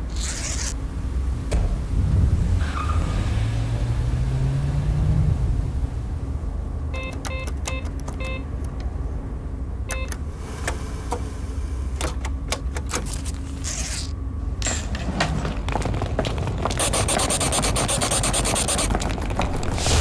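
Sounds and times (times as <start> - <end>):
steady low hum: 0.0 - 2.6, 5.2 - 20.0
keypad beeps: 6.9 - 8.5, 9.9 - 10.2
machine whirr: 16.6 - 20.0.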